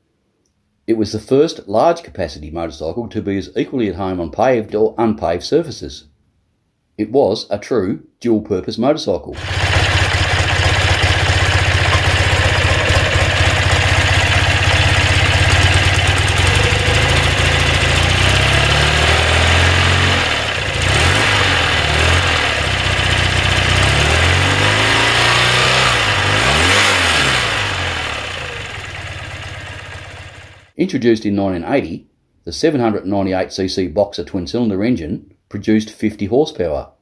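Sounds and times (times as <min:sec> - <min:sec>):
motorcycle engine idling and revving: 0:09.4 - 0:30.7.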